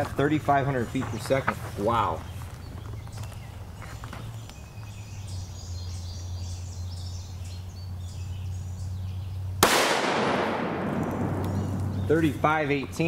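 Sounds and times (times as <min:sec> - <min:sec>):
rifle shot with echo: 0:09.6 - 0:12.4.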